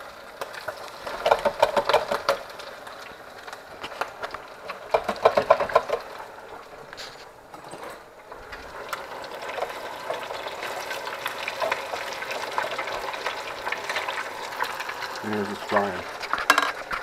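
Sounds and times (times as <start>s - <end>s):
oil sizzling and crackling: 0.0s - 17.0s
clicks and clatters: 0.4s - 2.6s, 15.8s - 17.0s.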